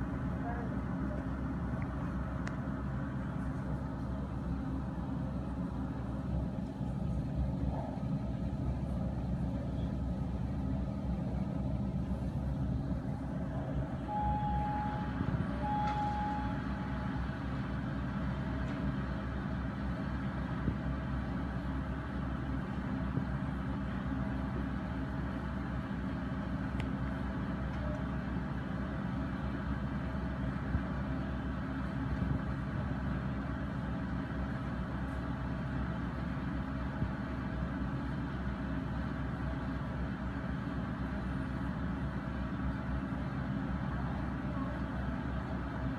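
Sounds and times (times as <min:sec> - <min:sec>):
excavator diesel engine rumbling: 0:00.0 - 0:45.9
short high-pitched tones: 0:13.9 - 0:17.2.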